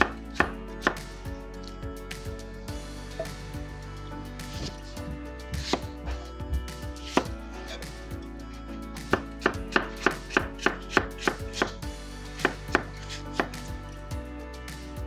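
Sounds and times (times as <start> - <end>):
knife chopping on wooden board: 0.0 - 1.0, 5.6 - 5.9, 7.1 - 7.4, 9.1 - 11.8, 12.4 - 13.6.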